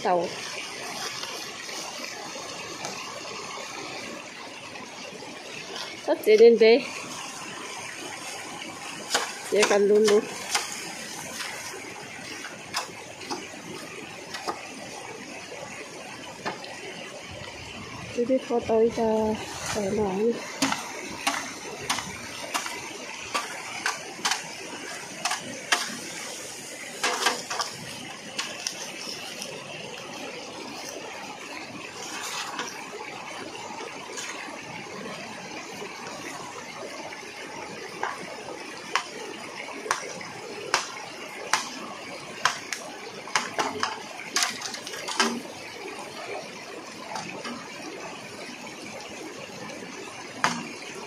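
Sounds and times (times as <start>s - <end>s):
stream running: 0.0s - 51.0s
bamboo pole knocking and cracking: 39.9s - 41.8s, 42.4s - 42.8s, 43.4s - 45.4s.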